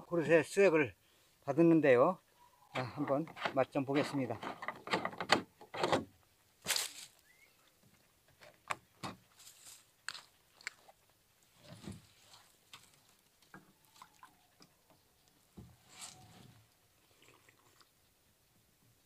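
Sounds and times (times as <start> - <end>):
plastic jug and cup handling: 2.8 - 6.0
liquid pouring into a cup: 17.1 - 17.9.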